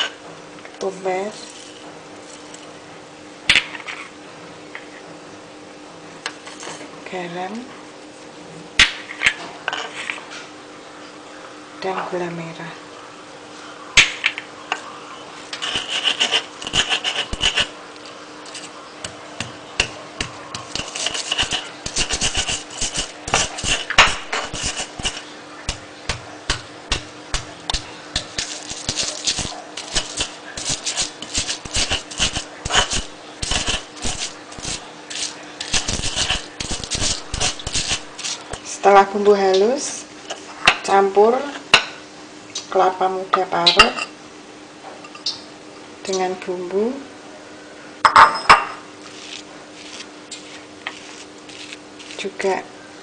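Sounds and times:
stone pestle grinding in mortar: 15.6 - 17.7, 19.4 - 25.8, 27.7 - 38.6, 49.1 - 52.3.

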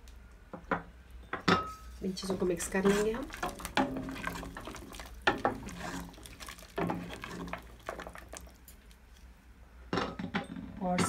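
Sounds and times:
wooden spoon scraping metal pot: 1.9 - 8.9.

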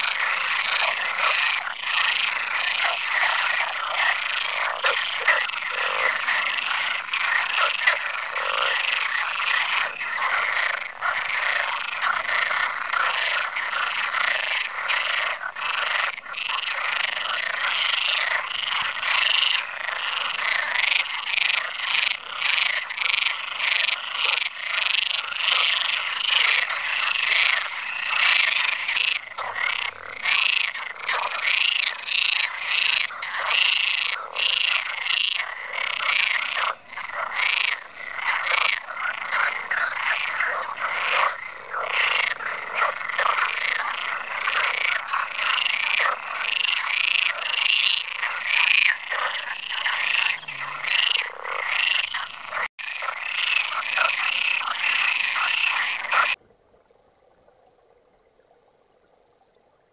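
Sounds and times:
frogs croaking: 0.0 - 56.4.

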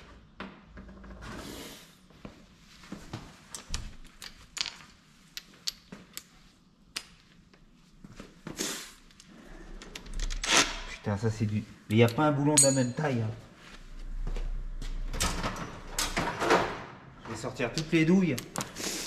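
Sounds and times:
hand tools clinking on bolts: 12.0 - 13.1.

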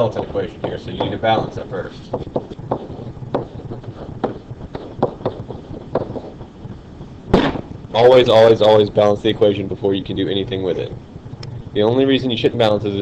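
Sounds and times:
faint low hum: 0.0 - 13.0
stylus tapping on writing surface: 0.6 - 6.4.

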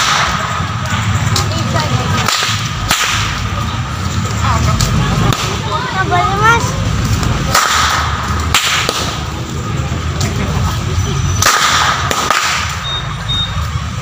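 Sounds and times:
whip cracks: 0.0 - 0.7, 2.2 - 3.5, 7.5 - 9.3, 11.4 - 12.8.

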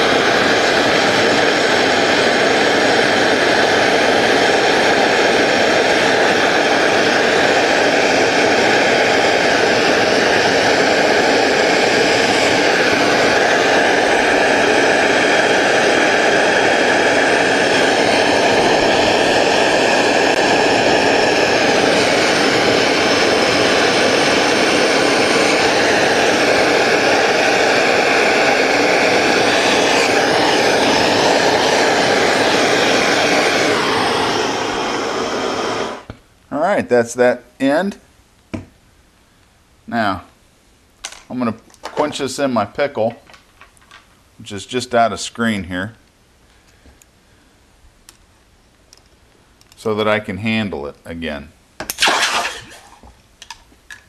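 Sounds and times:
gas torch flame rushing: 0.0 - 36.2, 41.1 - 43.8, 51.8 - 53.6.

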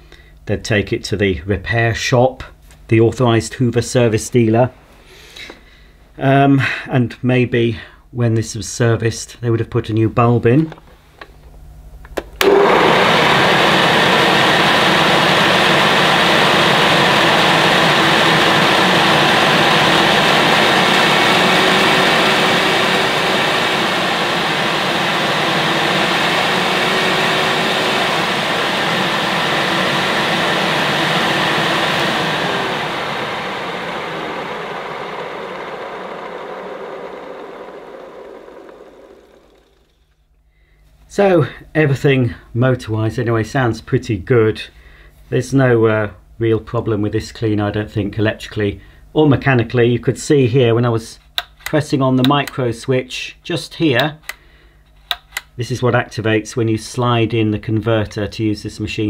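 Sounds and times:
vacuum cleaner motor whining: 12.4 - 40.2.

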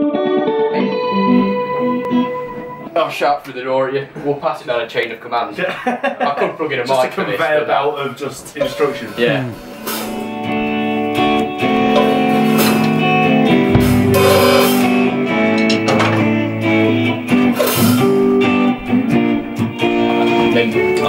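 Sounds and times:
band playing: 12.0 - 19.0
cymbal crashes: 13.7 - 18.5.

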